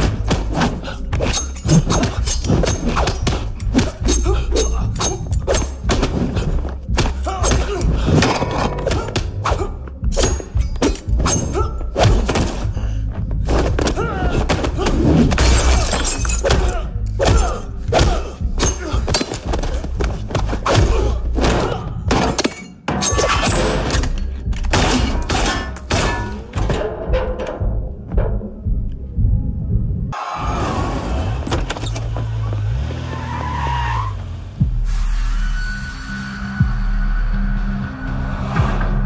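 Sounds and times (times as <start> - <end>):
action music score: 0.0 - 39.0
glass shattering: 15.4 - 16.6, 25.0 - 26.6.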